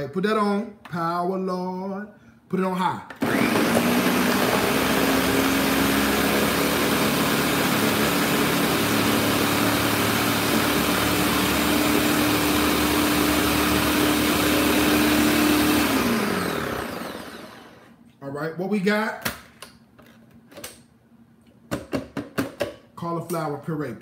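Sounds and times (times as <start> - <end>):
blender motor whine: 3.2 - 18.0.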